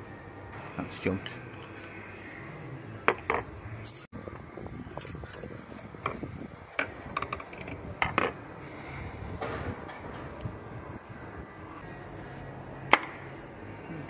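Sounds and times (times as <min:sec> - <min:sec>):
metallic clinks and knocks: 0:06.8 - 0:08.4.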